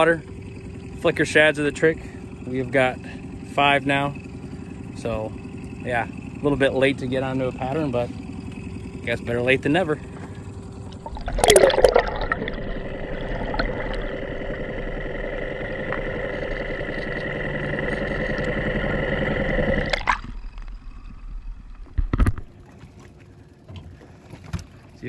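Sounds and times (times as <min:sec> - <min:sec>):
boat background noise: 0:00.0 - 0:25.0
boat motor whine underwater: 0:00.0 - 0:25.0
underwater splash sweep: 0:10.9 - 0:18.0.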